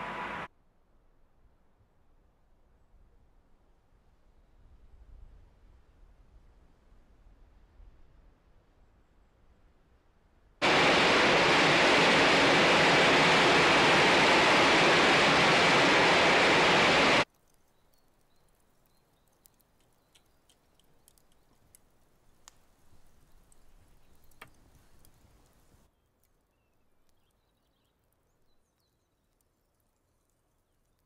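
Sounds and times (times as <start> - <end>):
loud steady hiss: 0.0 - 0.5, 10.6 - 17.2
faint crackles: 10.6 - 31.0.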